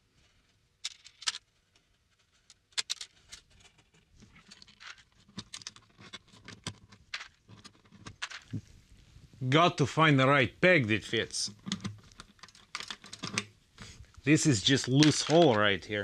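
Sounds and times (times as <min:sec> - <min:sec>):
guitar strings clicking and rattling: 0:11.5 - 0:13.5, 0:14.6 - 0:16.0.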